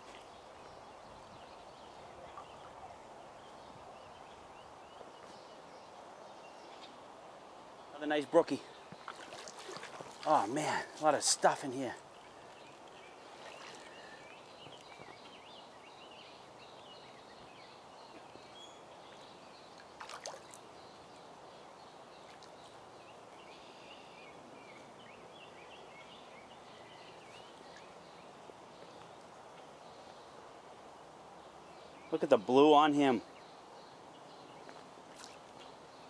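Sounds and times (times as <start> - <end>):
brook running water: 0.0 - 36.0
small birds chirping: 0.0 - 36.0.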